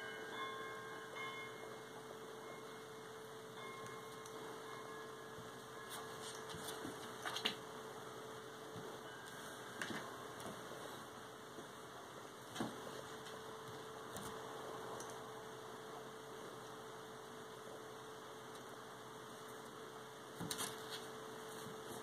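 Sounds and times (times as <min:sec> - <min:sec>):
electrical hum: 0:00.0 - 0:22.0
animals scuffling on tile floor: 0:05.9 - 0:07.6, 0:20.4 - 0:22.0.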